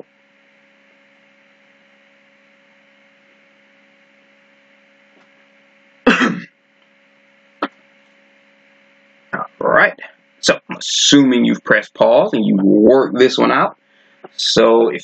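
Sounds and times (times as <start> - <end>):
low electrical hum: 0.0 - 15.0
person clearing throat: 6.1 - 6.5.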